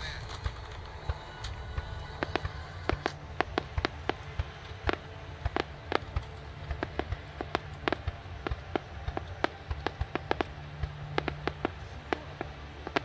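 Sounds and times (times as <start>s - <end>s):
fireworks cracking and popping: 0.0s - 13.0s
low background rumble: 0.0s - 13.0s.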